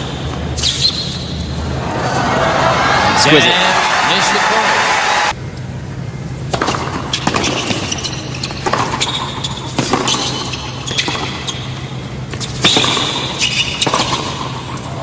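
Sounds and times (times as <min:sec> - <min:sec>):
tennis shoes squeaking on court: 0:00.0 - 0:01.6, 0:06.5 - 0:15.0
low hum: 0:00.0 - 0:09.7
racket hitting tennis ball: 0:06.5 - 0:15.0
tennis ball bouncing: 0:06.5 - 0:15.0.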